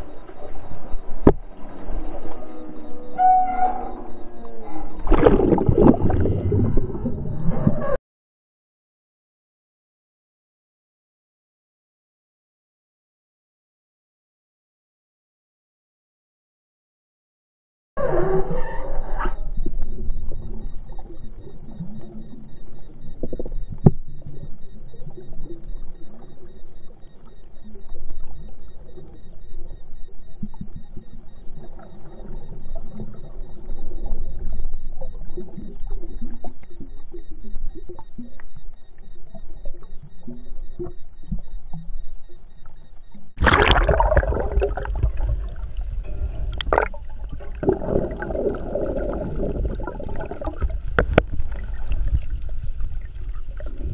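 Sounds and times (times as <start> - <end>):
muffled underwater sound: 0.0 - 8.0, 18.0 - 53.9
water rushing and splashing: 43.4 - 53.9.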